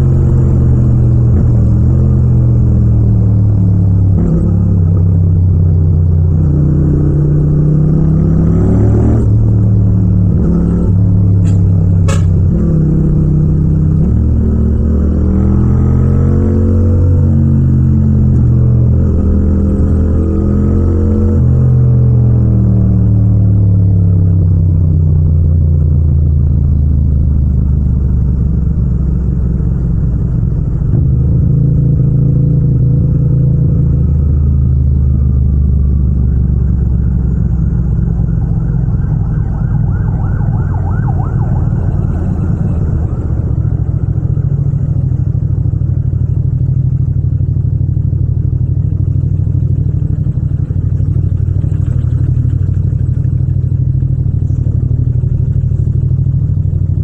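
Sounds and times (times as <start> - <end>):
motorcycle engine at low revs: 0.0 - 57.0
high rising whine: 25.2 - 47.1.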